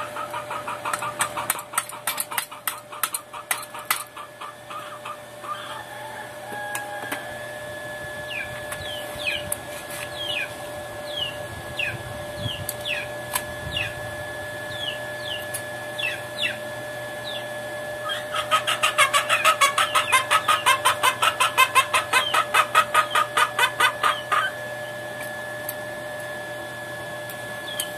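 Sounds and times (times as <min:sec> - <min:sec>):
chickens clucking rapidly: 0:00.0 - 0:06.0, 0:18.0 - 0:24.6
chickens peeping: 0:00.0 - 0:07.1, 0:08.2 - 0:13.1, 0:13.7 - 0:14.0, 0:14.7 - 0:16.6, 0:17.2 - 0:25.0
steady hum: 0:00.0 - 0:27.9.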